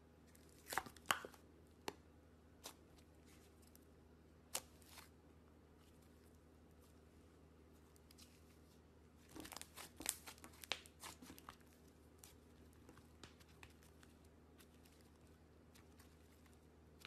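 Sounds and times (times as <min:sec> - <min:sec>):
slime crackling and popping: 0:09.3 - 0:17.0.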